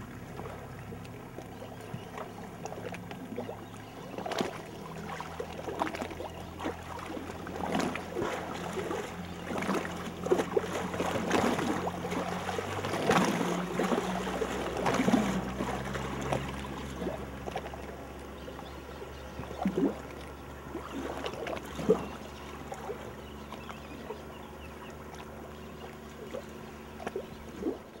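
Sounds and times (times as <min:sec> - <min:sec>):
splashes and knocks: 0:04.2 - 0:18.0.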